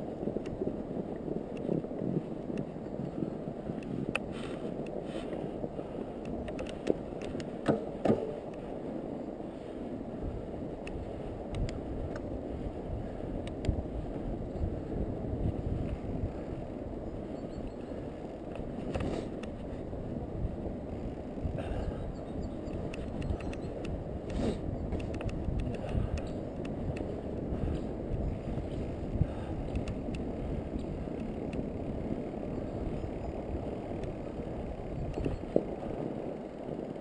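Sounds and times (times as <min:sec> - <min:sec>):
bike tyres rumbling over snow: 0:00.0 - 0:37.0
light clicks: 0:10.8 - 0:12.3, 0:22.7 - 0:27.2.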